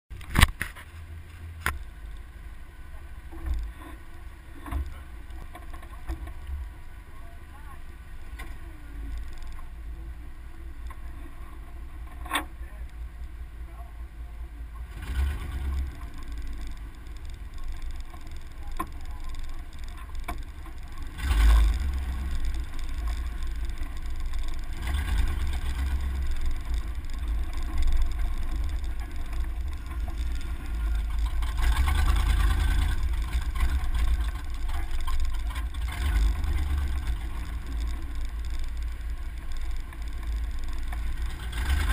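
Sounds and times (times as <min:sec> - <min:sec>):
truck engine and tyres rumbling: 0:00.0 - 0:41.9
sharp click: 0:00.2 - 0:00.9.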